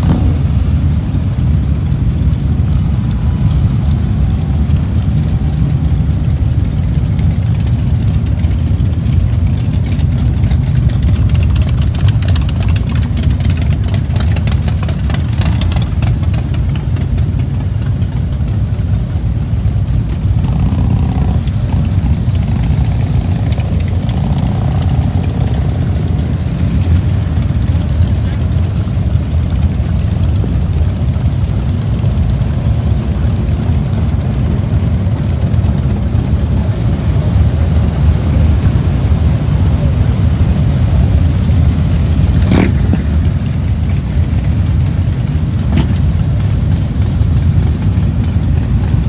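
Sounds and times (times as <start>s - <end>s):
motorcycles idling: 0.0s - 49.0s.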